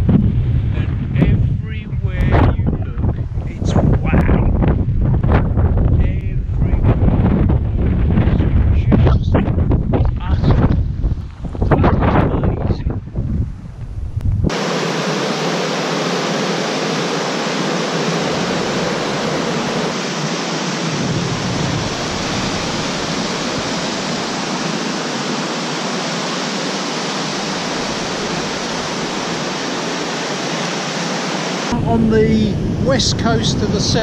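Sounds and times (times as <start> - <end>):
river rushing over rocks: 14.5 - 31.7.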